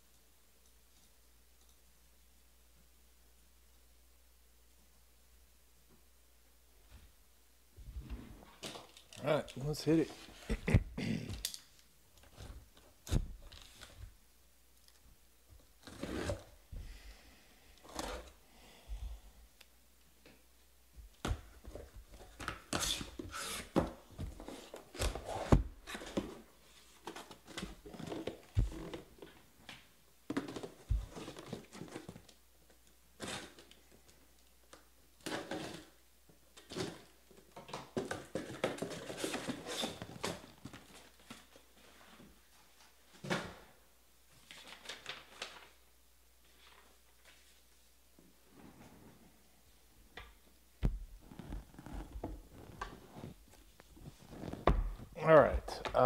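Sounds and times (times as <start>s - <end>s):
cardboard boxes scraping and knocking: 37.9s - 42.4s.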